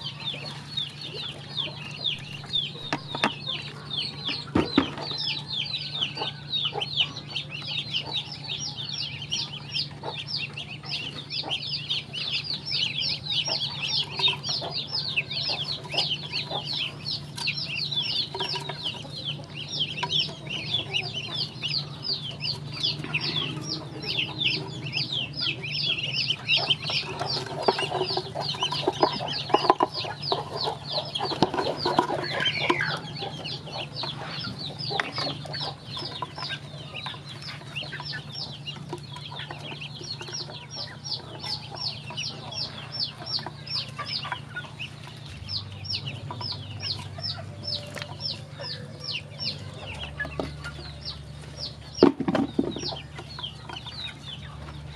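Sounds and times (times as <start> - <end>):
ducklings peeping: 0.0 - 54.9
tapping and pecking: 24.5 - 42.7.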